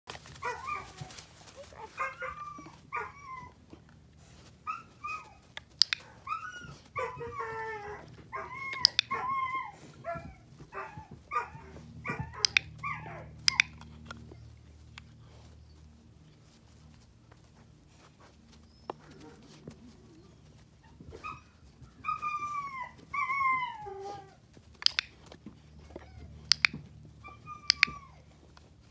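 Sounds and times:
puppy whining and yipping: 0.4s - 16.0s, 18.2s - 28.9s
sharp clicks: 5.5s - 6.2s, 8.7s - 9.2s, 12.3s - 12.7s, 13.4s - 14.2s, 24.8s - 25.4s, 26.4s - 26.8s.

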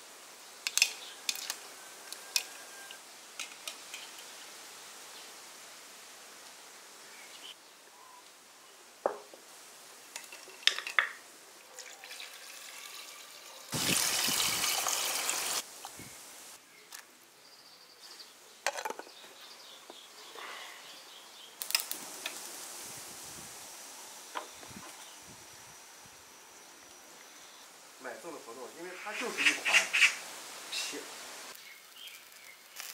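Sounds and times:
water pouring into a pot: 11.8s - 15.6s.

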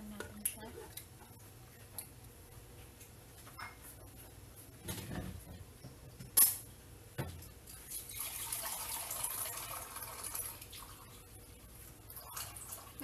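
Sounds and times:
water pouring: 7.8s - 11.3s, 12.1s - 13.0s.

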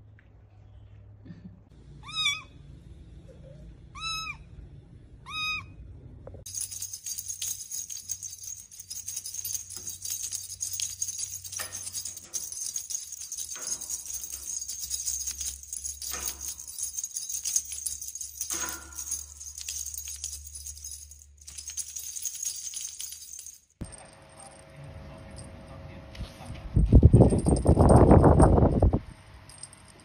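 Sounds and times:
small bells jingling: 6.5s - 25.8s, 27.2s - 30.0s.

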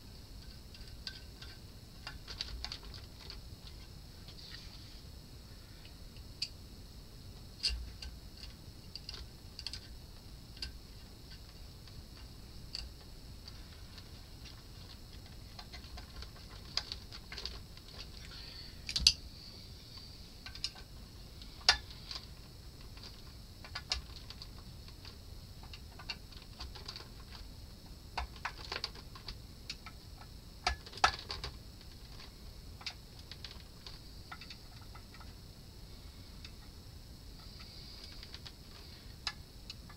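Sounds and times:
metal parts clicking and tapping: 0.4s - 3.9s, 7.6s - 11.6s, 14.0s - 19.2s, 20.4s - 20.9s, 21.6s - 22.3s, 30.6s - 35.4s
faint high hiss: 3.0s - 28.3s, 31.4s - 39.9s.

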